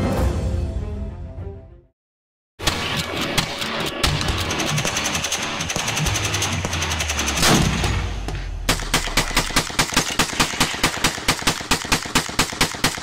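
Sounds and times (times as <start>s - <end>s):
music: 0.0s - 2.0s, 2.6s - 9.5s
rapid gunfire: 2.6s - 13.0s.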